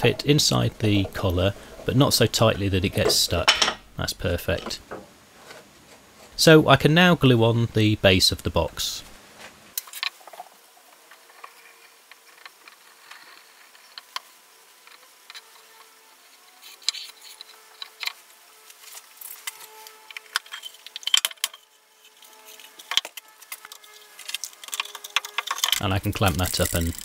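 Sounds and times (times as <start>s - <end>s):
wooden parts clicking and knocking: 0.0s - 6.3s, 19.5s - 21.7s, 22.4s - 27.0s
bar clamp being worked: 0.0s - 6.4s, 19.4s - 27.0s.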